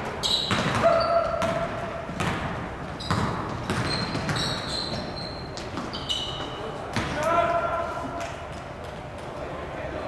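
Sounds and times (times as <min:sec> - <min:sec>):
shoes squeaking on floor: 0:00.1 - 0:01.6, 0:02.9 - 0:06.9
basketball bouncing on wooden floor: 0:00.4 - 0:06.0.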